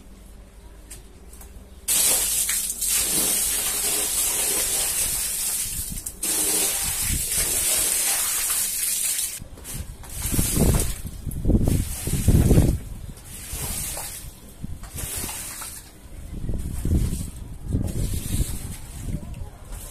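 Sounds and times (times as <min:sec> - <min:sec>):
water gushing onto a rug: 0:01.9 - 0:09.4, 0:10.1 - 0:15.9
squeegee swishing water: 0:01.9 - 0:16.0.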